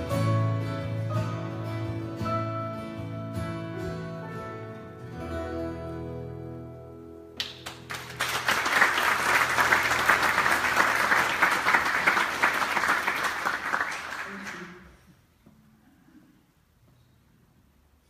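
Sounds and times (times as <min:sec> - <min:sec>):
audience applause: 0:07.4 - 0:15.0.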